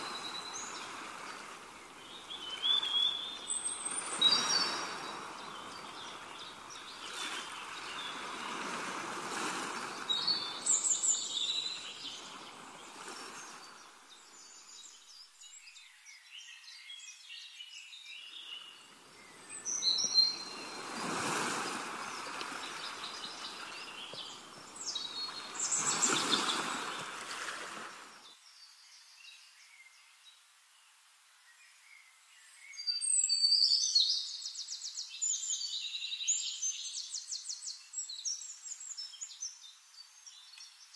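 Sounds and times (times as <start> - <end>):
birds chirping and trilling: 0.0 - 8.7, 9.6 - 17.2, 18.0 - 27.2.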